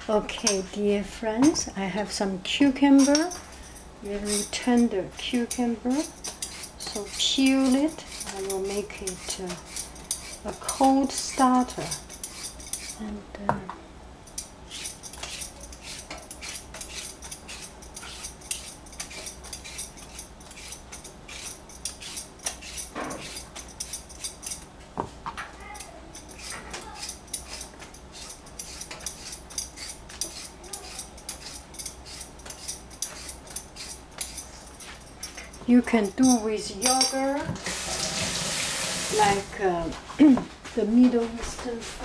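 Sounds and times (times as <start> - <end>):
vegetable peeler scraping cucumber: 4.0 - 13.2, 14.7 - 24.7, 25.7 - 39.5.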